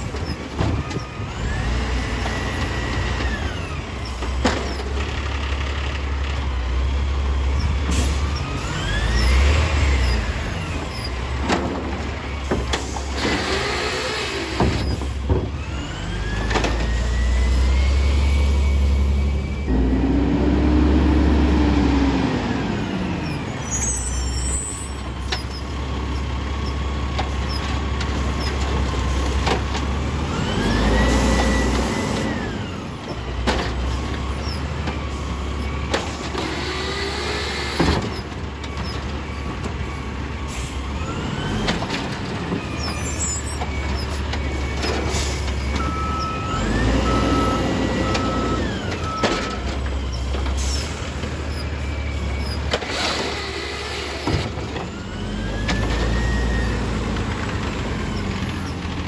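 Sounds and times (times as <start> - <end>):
diesel engine revving: 0.0 - 59.0
beeps: 45.8 - 49.4.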